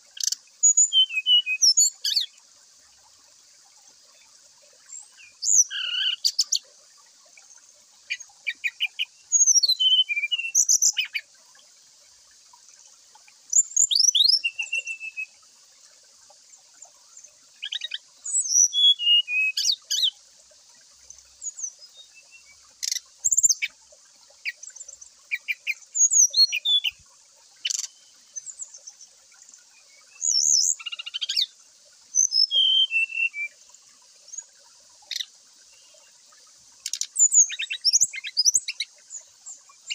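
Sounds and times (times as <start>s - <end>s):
faint steady hiss: 0.0s - 39.9s
bird whistling song: 0.2s - 2.3s, 4.9s - 6.6s, 8.1s - 11.2s, 13.5s - 15.3s, 17.6s - 20.1s, 24.4s - 27.0s, 27.6s - 28.8s, 30.0s - 31.5s, 32.1s - 33.6s, 36.8s - 39.9s.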